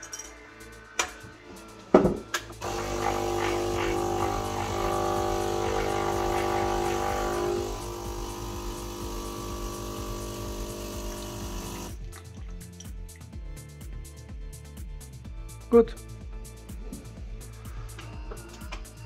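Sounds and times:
espresso machine pump humming: 2.6 - 12.0.

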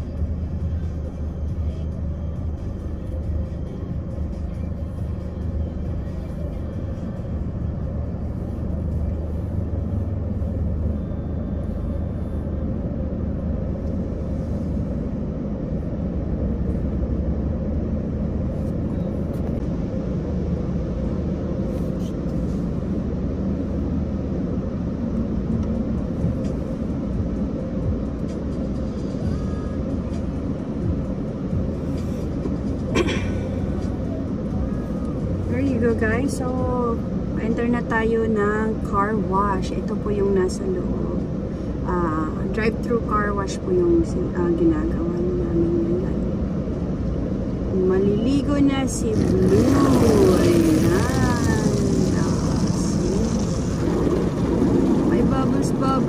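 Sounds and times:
car wash machinery rumble: 0.0 - 56.0
vehicles idling: 46.2 - 56.0.

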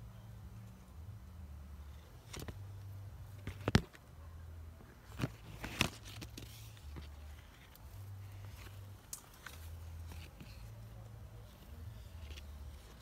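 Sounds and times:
leaves rustling: 5.0 - 13.0.

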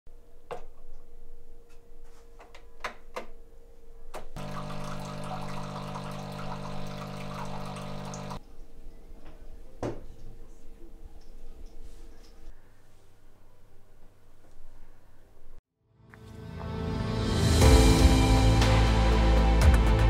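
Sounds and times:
coffee machine pump humming: 4.4 - 8.4
coffee streaming into cup: 4.4 - 8.4.

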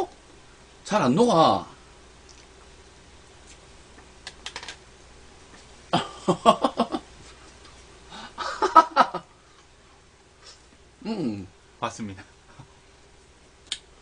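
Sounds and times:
man laughing: 5.9 - 7.1, 8.1 - 9.3.

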